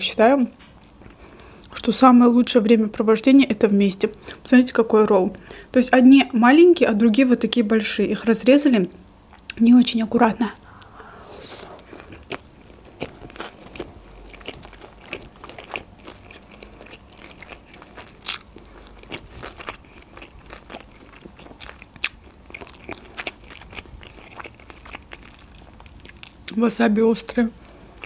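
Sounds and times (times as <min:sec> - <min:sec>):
wet chewing and crunching: 0:10.6 - 0:26.7.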